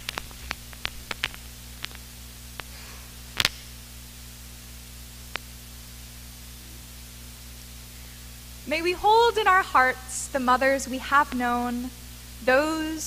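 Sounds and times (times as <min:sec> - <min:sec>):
small clicks: 0:00.0 - 0:02.7, 0:03.3 - 0:03.7, 0:05.3 - 0:05.5
electrical hum and hiss: 0:00.0 - 0:13.0.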